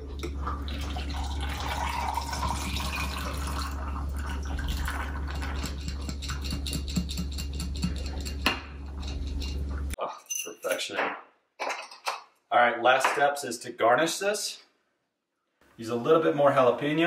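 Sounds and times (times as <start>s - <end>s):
liquid pouring over ice: 0.5s - 6.5s.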